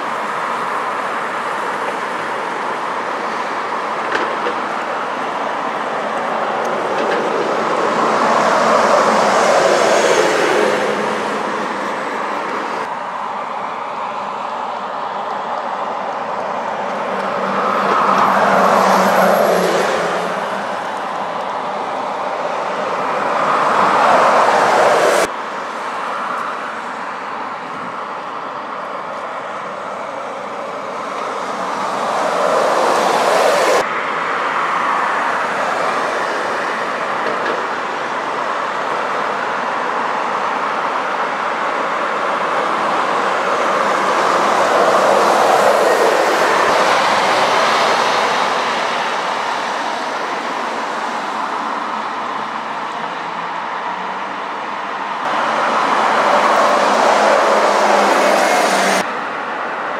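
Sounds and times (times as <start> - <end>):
vehicles passing: 0.0 - 59.9.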